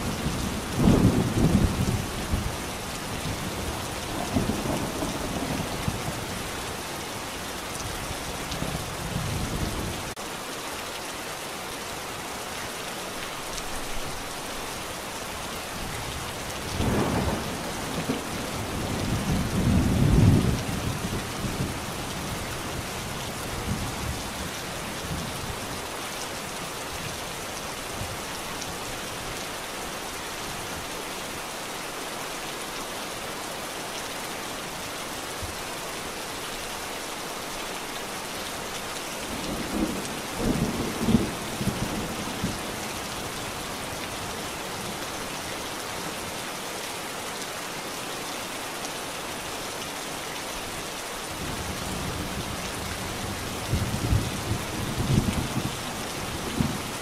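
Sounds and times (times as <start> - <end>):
steady rain: 0.0 - 57.0
low thunder rumbles: 16.6 - 21.9.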